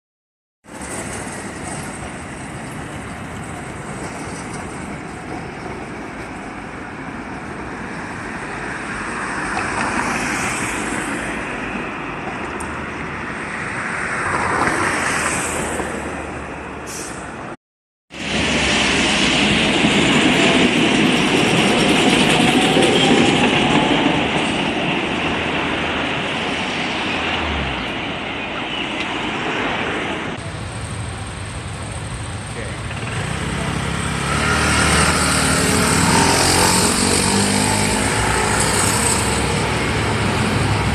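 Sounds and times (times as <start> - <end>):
trams running on rails: 0.6 - 17.6, 18.2 - 40.9
cars and scooters passing: 8.0 - 16.8, 29.3 - 40.9.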